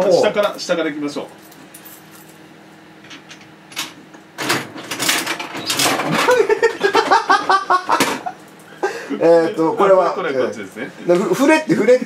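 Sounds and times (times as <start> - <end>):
man talking: 0.0 - 1.2, 9.1 - 12.0
vending machine crank grinding: 4.6 - 6.4.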